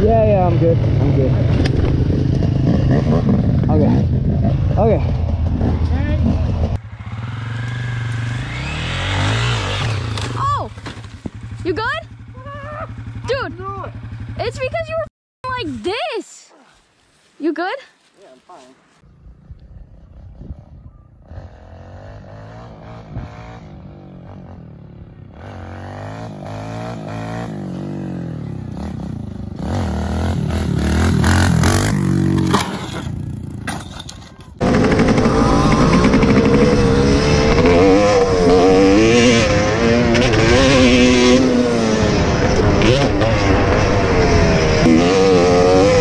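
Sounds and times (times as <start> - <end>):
two-stroke engine revving: 0.0 - 10.7, 21.2 - 33.7, 34.6 - 46.0
dirt bike engine approaching: 0.0 - 16.2, 19.0 - 46.0.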